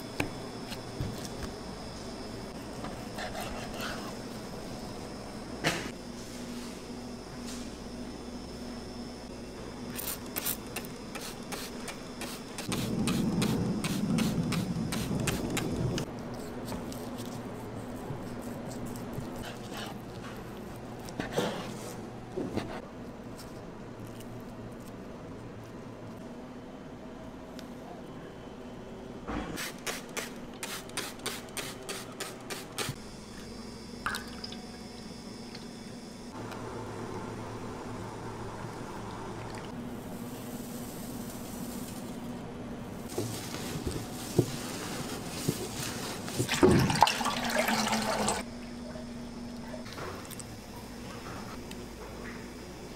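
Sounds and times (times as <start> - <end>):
liquid pouring into steel bowl: 46.5 - 48.4.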